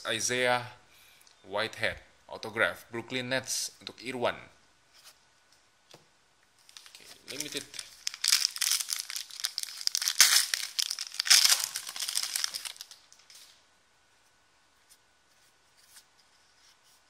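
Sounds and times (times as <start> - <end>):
foil wrapper tearing and crinkling: 6.6 - 13.1.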